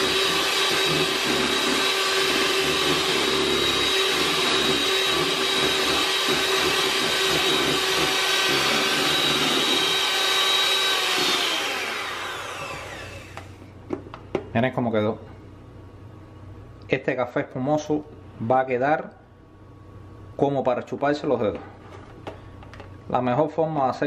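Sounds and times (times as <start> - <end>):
electric hand mixer whining: 0.0 - 13.6.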